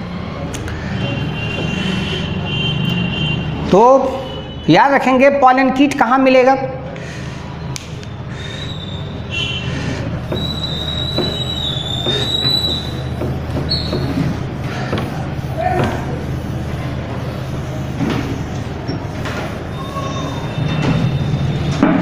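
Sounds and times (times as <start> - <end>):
eraser wiping whiteboard: 0.8 - 2.4, 8.3 - 21.6
eraser squeaking on whiteboard: 8.4 - 21.8.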